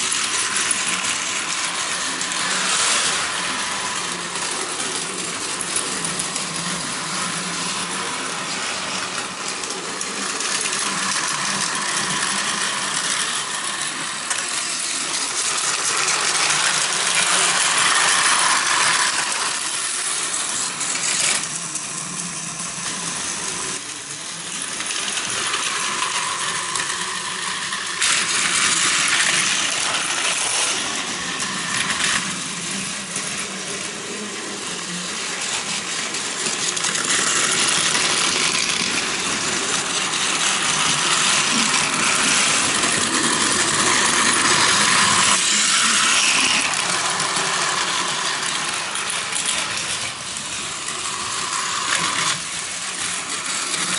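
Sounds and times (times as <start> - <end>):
toy trains rattling on plastic track: 0.0 - 53.9.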